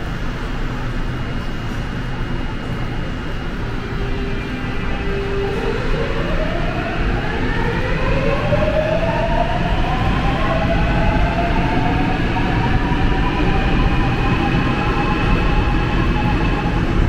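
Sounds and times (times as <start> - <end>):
train low rumble: 0.0 - 17.0.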